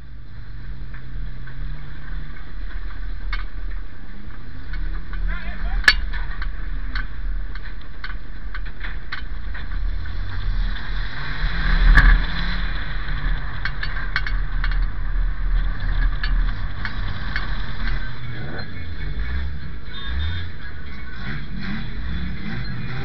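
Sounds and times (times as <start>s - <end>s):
race car engine running: 0.0s - 23.0s
car body rattling and knocking: 0.9s - 10.3s, 12.0s - 18.2s.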